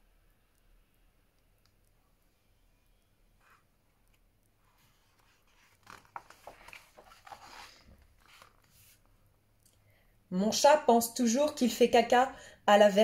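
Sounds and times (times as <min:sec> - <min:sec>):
paper page rustling: 0:03.4 - 0:09.1.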